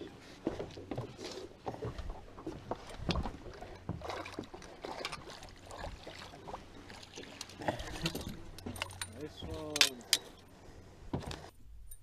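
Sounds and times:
fish splashing: 2.6s - 8.7s.

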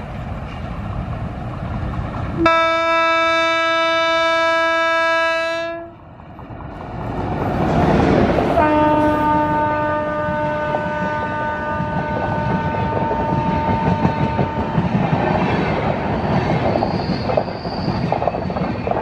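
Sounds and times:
train passing rumble: 0.0s - 19.0s
train air horn blast: 2.4s - 6.0s, 8.6s - 15.0s.

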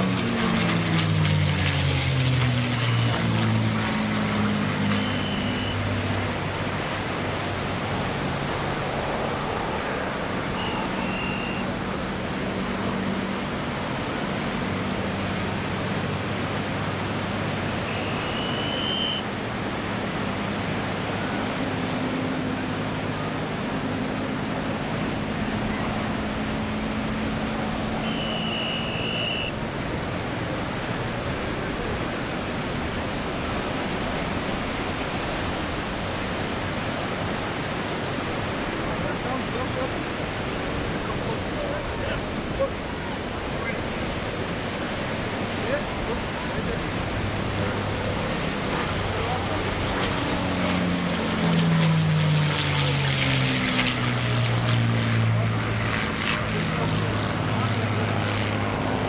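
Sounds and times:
distant propeller plane droning: 0.0s - 59.0s
surf: 0.0s - 59.0s
wind: 0.0s - 59.0s
short high chirps: 5.0s - 5.8s.

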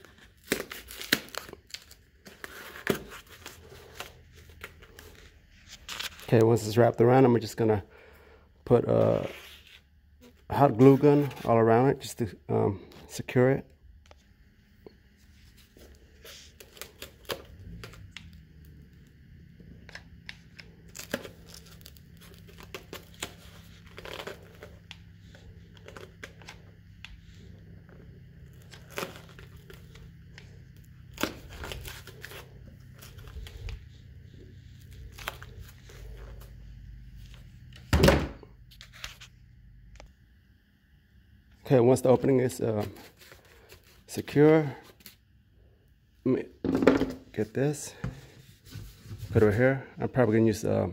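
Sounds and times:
crinkling and tearing foam: 0.0s - 6.7s, 20.0s - 37.7s
faint low hum: 0.0s - 50.9s.

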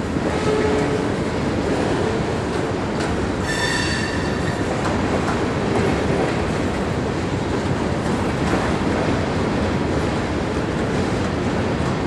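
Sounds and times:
train wheels rumbling on rail: 0.0s - 12.0s
wheels clicking over rail joints: 4.4s - 12.0s.

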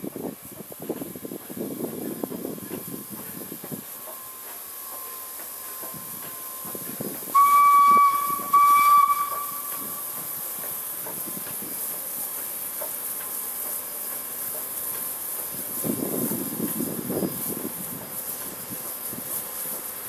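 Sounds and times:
steam engine hissing: 0.0s - 20.0s
steam whistle blasts: 7.3s - 10.2s.

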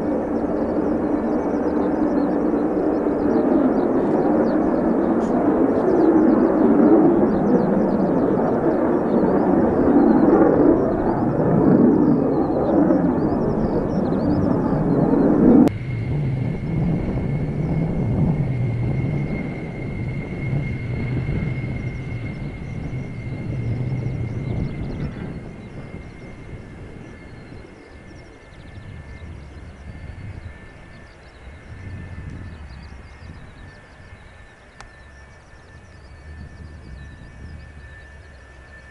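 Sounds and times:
jet engine roar: 0.0s - 38.9s
small birds chirping: 0.3s - 6.4s.

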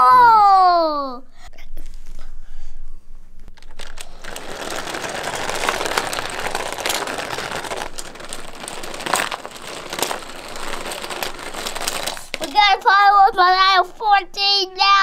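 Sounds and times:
toy trucks crashing clacks: 3.6s - 12.9s
toy trucks rattling down plastic ramp: 3.6s - 13.4s.

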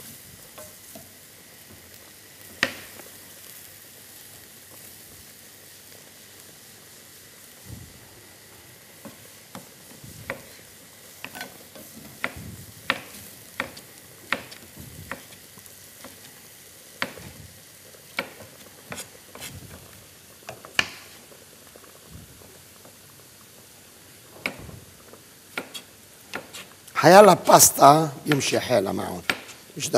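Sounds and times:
food sizzling in a frying pan: 0.0s - 29.9s
utensils clacking on pan: 11.2s - 15.4s.

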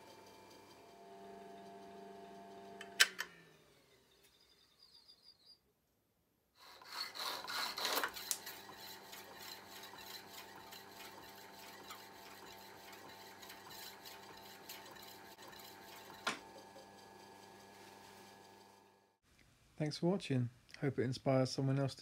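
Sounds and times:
motor humming: 0.0s - 5.0s
hacksaw strokes: 6.6s - 16.4s.

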